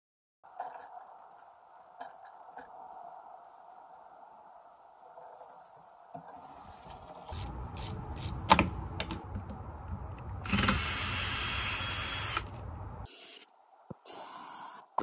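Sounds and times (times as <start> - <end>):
cordless drill running: 10.4 - 12.6.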